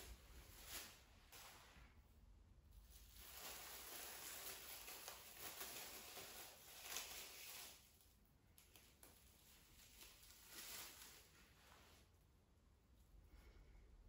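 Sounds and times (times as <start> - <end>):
plastic cling film crinkling: 0.0 - 1.7, 2.8 - 12.0.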